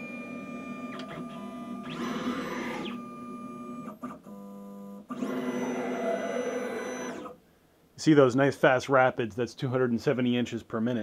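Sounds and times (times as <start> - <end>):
stepper motors whining: 0.0 - 4.0, 5.1 - 7.4.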